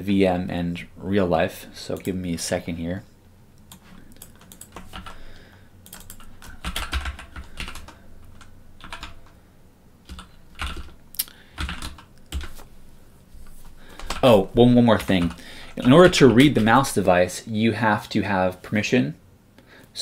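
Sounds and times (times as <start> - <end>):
computer keyboard typing: 3.7 - 5.2, 5.8 - 9.4, 10.1 - 11.0, 11.6 - 12.7, 13.9 - 17.0.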